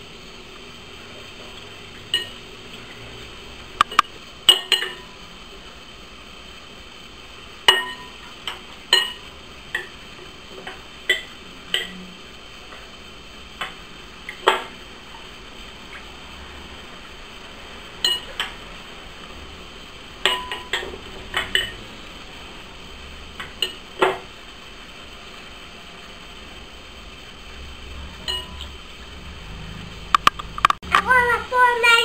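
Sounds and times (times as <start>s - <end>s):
metal spoon clinking glass bowl: 18.0s - 18.4s, 21.5s - 21.8s, 28.2s - 28.7s.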